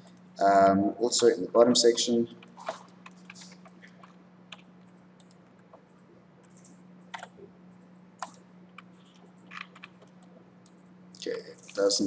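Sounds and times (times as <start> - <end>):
steady low hum: 0.0 - 12.0
keyboard and mouse clicks: 2.4 - 7.4, 8.2 - 10.8.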